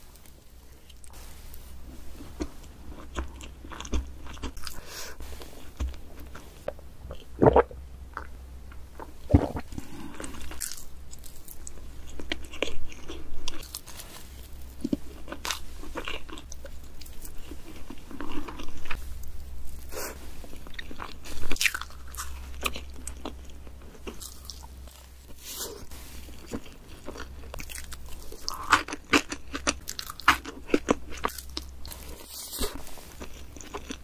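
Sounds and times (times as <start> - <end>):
mouth chewing cake: 2.2 - 4.9, 19.8 - 34.0.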